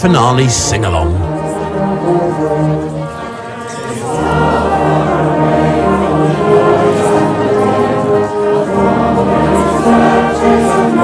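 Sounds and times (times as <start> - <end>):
brass band playing: 0.0 - 7.3
crowd singing in unison: 0.1 - 11.0.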